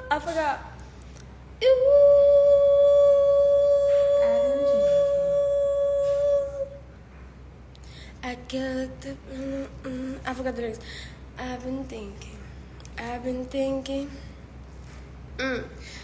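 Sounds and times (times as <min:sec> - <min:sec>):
woman singing a long note: 0:01.6 - 0:06.8.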